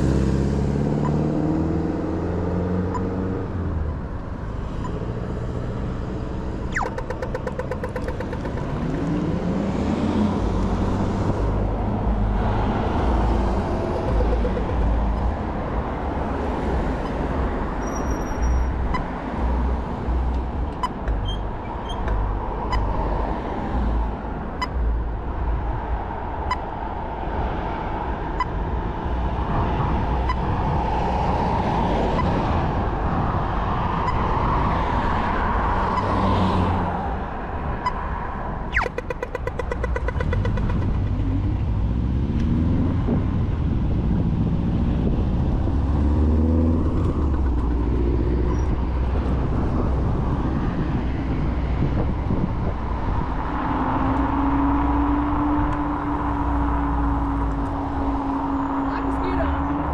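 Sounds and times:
road and tyre noise: 0.0s - 59.9s
wind buffeting microphone: 40.2s - 59.9s.

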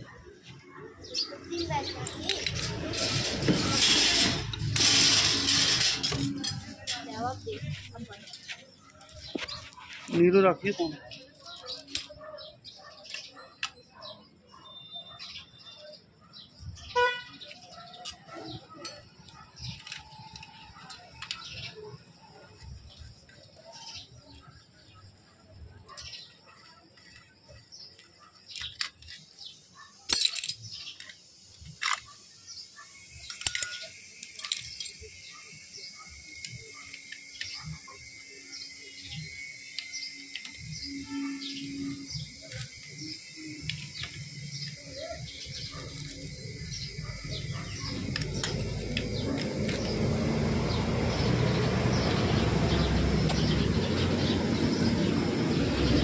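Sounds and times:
metal tools and parts clanking: 1.6s - 10.3s, 11.2s - 14.2s, 17.5s - 24.4s, 25.1s - 32.2s, 33.0s - 35.4s, 39.1s - 50.0s.

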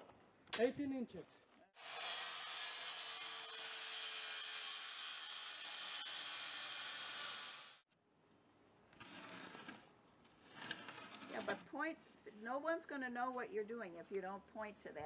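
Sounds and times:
circular saw cutting wood: 1.8s - 7.8s.

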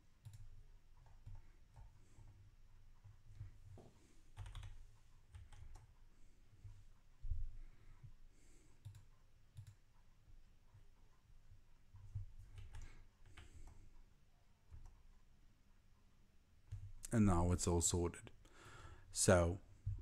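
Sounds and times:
keyboard clicks: 0.2s - 1.9s, 4.4s - 6.0s, 8.8s - 9.8s, 11.9s - 13.8s
computer mouse clicks: 0.2s - 2.4s, 4.3s - 6.0s, 8.8s - 10.0s, 11.9s - 13.9s, 14.7s - 15.2s.

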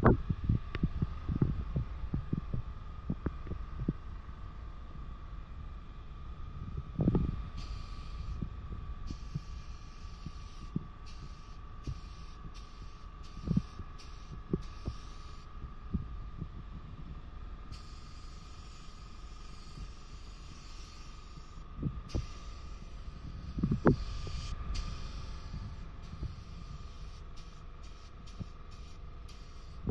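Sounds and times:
steady hum: 0.0s - 29.9s
spray gun hissing: 7.6s - 15.6s, 17.7s - 29.9s.

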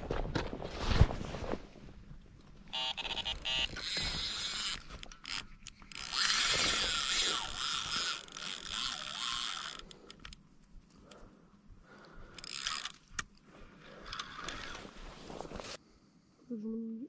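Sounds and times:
fishing reel ratcheting: 2.7s - 10.4s, 12.2s - 13.3s.

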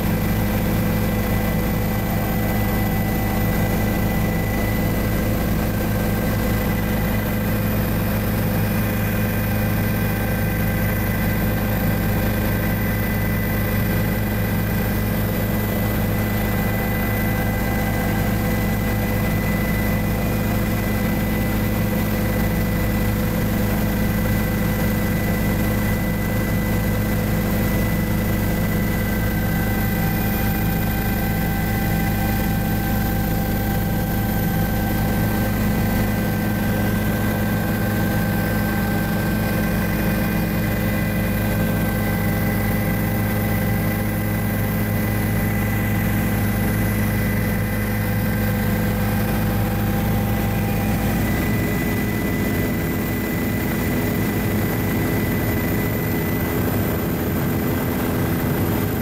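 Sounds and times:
helicopter rotor and engine drone: 0.0s - 59.0s.

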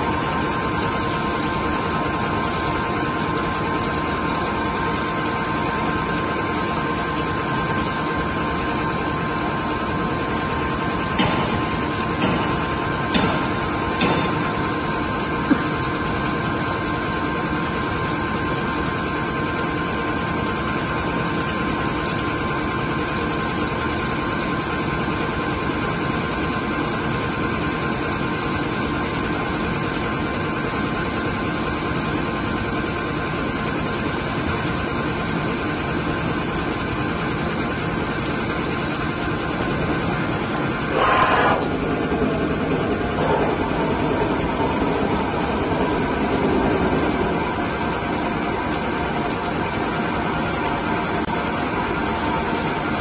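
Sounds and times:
lathe machine hum: 38.1s - 53.0s
coolant spraying hiss: 39.0s - 49.5s.

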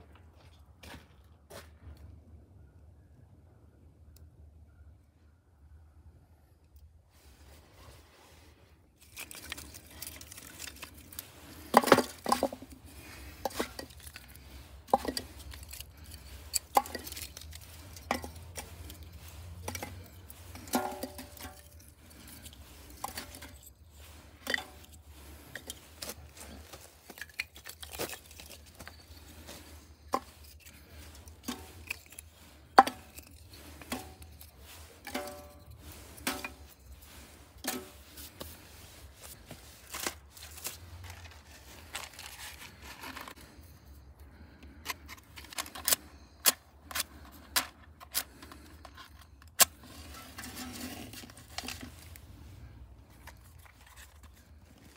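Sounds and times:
wood sticks knocking on metal bucket: 11.7s - 21.8s, 35.0s - 36.7s.

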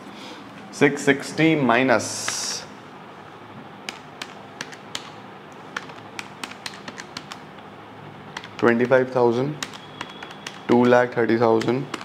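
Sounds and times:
faint steady hum: 0.0s - 12.0s
calculator keys clicking: 3.8s - 7.5s, 8.3s - 12.0s.

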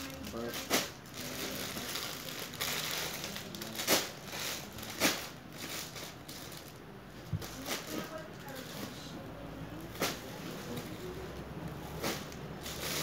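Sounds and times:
plastic bag crinkling: 0.0s - 6.8s, 11.7s - 13.0s.

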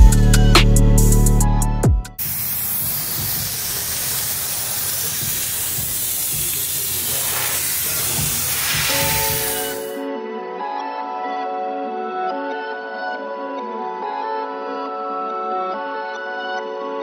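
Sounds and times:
electronic music: 0.0s - 10.0s
steam cleaner hissing: 2.2s - 10.0s.

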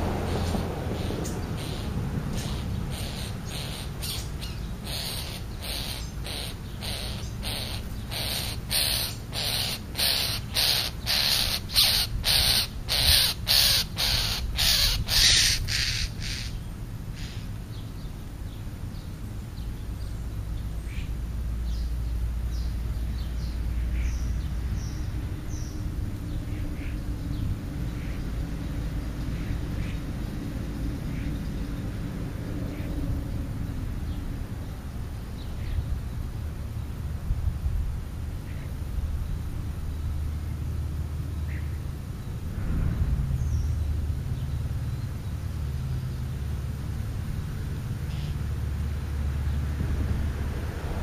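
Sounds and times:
small birds chirping: 0.0s - 37.7s, 43.4s - 49.7s
crow cawing: 4.8s - 16.5s.

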